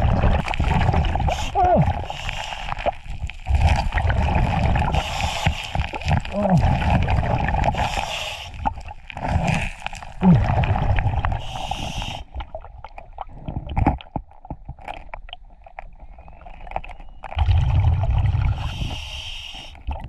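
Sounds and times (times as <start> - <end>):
scuba regulator bubbles: 0.0 - 20.0.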